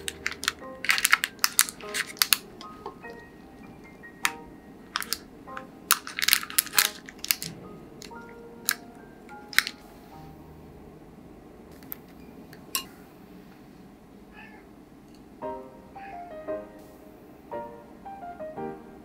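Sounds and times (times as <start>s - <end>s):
plastic wrap crinkling: 0.0s - 3.3s, 4.2s - 5.2s, 5.9s - 8.8s, 9.4s - 9.8s
light background music: 0.0s - 11.2s, 15.4s - 19.0s
chopsticks clicking on bento box: 4.2s - 9.8s.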